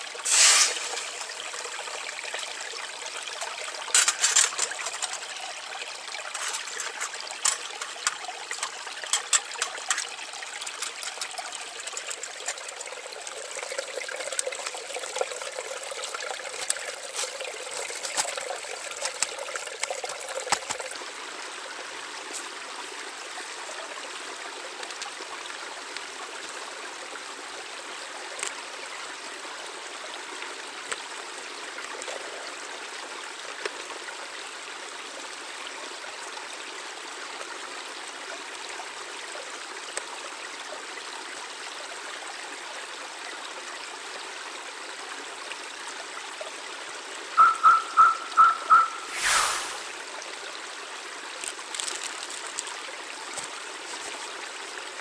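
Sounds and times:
brook babbling: 0:00.0 - 0:55.0.

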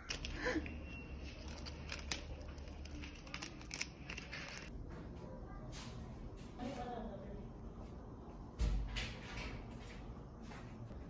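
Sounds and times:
plastic sachet rustling: 0:01.2 - 0:04.7.

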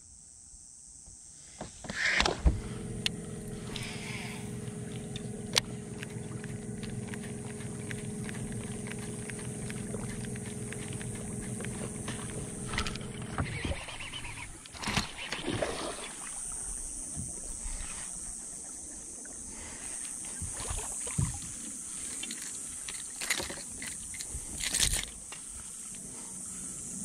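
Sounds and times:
water splashing: 0:03.5 - 0:18.0.

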